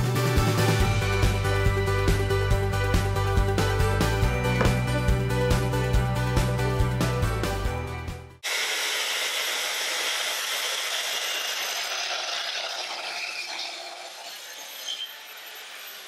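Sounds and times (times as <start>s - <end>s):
track saw cutting wood: 8.4s - 16.0s.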